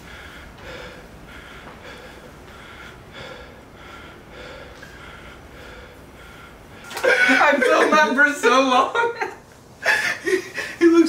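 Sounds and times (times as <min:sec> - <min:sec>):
man panting hard: 0:00.0 - 0:07.5.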